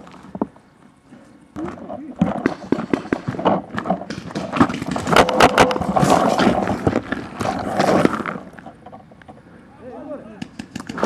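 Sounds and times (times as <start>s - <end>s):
scraping: 1.1s - 9.1s
sharp knocks: 1.6s - 8.2s.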